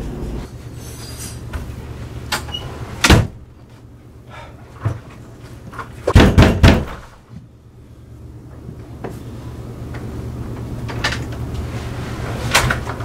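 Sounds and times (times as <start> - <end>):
loud knocks: 6.1 - 7.1.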